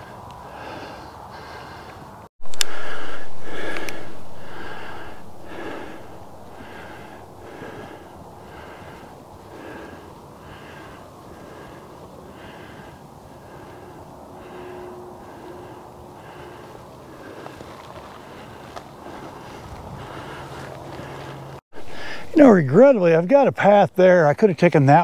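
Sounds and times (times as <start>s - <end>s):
man breathing hard: 0.0s - 22.4s.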